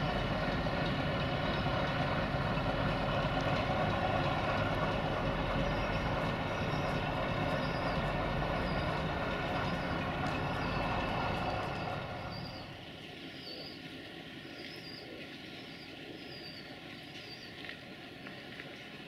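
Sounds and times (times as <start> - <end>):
diesel railcar engine running: 0.0 - 12.9
bird chirping: 5.6 - 12.8.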